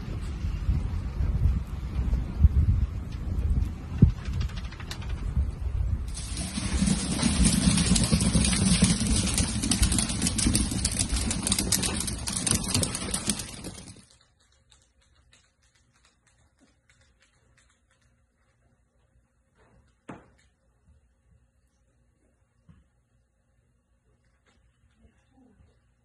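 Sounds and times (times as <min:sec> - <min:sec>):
claws clicking on tile floor: 0:06.1 - 0:18.7.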